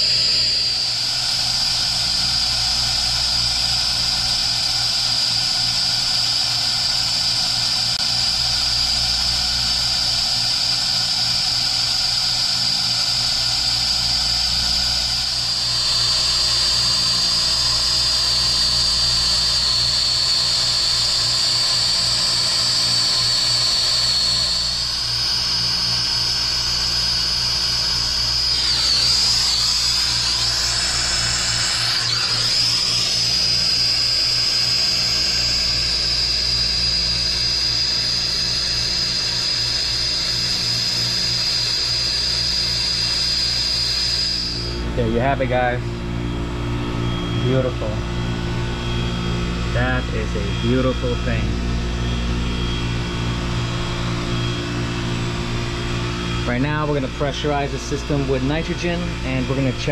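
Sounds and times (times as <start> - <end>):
brazing torch hissing and whistling: 0.0 - 44.8
low pulsing hum: 0.0 - 59.9.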